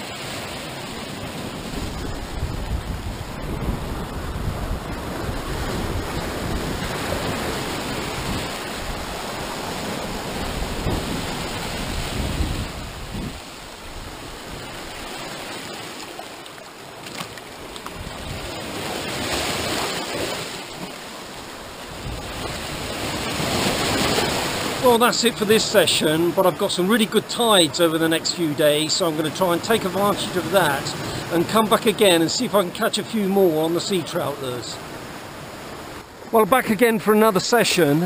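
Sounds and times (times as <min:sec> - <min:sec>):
surf breaking over rocks: 0:00.0 - 0:38.0
wind rumbling on microphone: 0:00.8 - 0:15.3, 0:17.7 - 0:19.2, 0:21.4 - 0:24.8.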